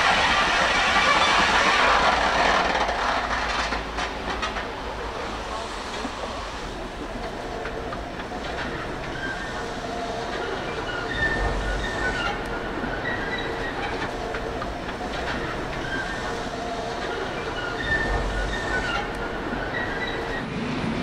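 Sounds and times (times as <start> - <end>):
train wheels rumbling on rails: 0.0 - 21.0
high-pitched wheel squeals: 8.7 - 14.2, 15.3 - 16.5, 17.1 - 20.5.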